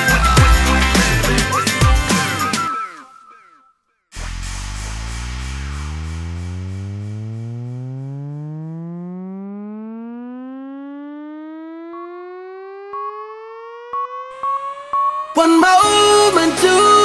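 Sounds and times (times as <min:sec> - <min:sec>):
electronic rising tone: 0:04.2 - 0:16.1
thin steady beep tone: 0:11.9 - 0:15.8.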